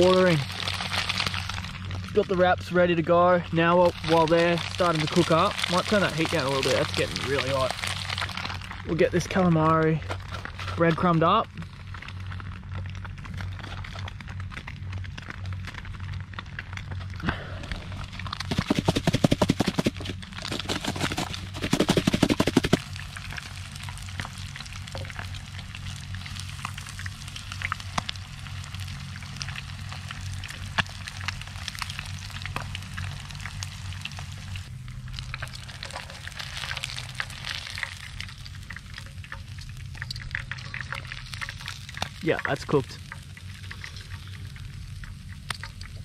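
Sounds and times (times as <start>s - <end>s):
food sizzling in frying pan: 0.0s - 2.1s, 3.8s - 8.9s, 22.2s - 46.0s
oil ticks and pops: 0.0s - 2.4s, 3.8s - 46.0s
plastic container shaken: 18.4s - 22.8s.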